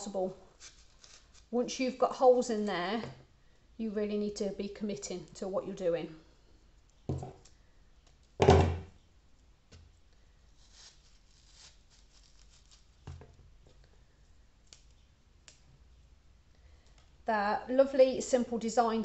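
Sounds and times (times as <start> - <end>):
dull knocks on wooden workbench: 7.1 - 7.4, 8.4 - 8.9.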